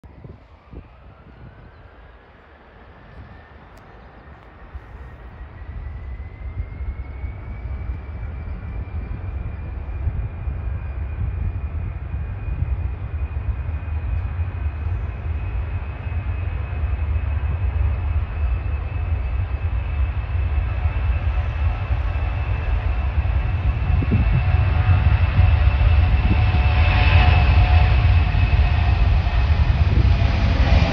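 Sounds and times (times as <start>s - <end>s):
jet engines deep rumble: 0.0s - 30.9s
jet whine rising in pitch: 0.1s - 30.9s.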